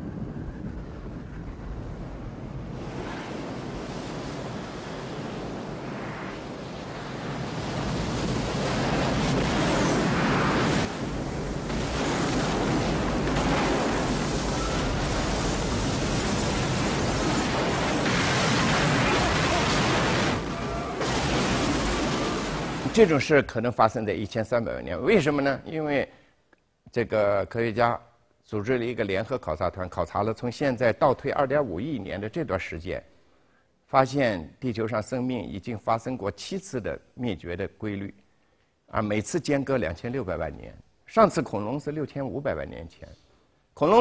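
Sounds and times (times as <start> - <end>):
rushing rumbling noise: 0.0 - 23.0.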